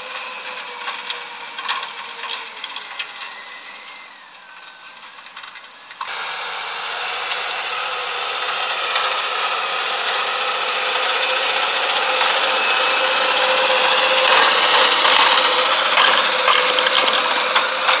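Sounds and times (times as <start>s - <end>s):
tractor engine under load: 0.0s - 18.0s
cultivator rattling through soil: 4.6s - 18.0s.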